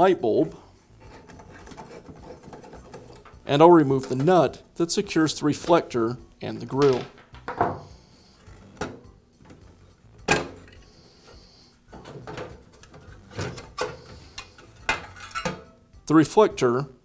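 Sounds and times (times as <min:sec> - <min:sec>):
metal and plastic knocks and scrapes: 0:01.0 - 0:04.6, 0:06.7 - 0:15.7.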